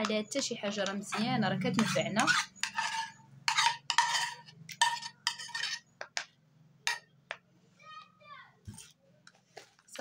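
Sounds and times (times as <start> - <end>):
spoon tapping against pan: 0.0 - 1.2
metal spoon scraping saucepan: 0.0 - 6.0.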